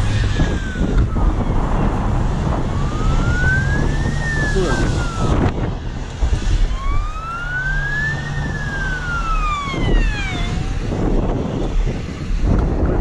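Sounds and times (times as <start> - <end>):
emergency siren wailing: 0.0 - 12.3.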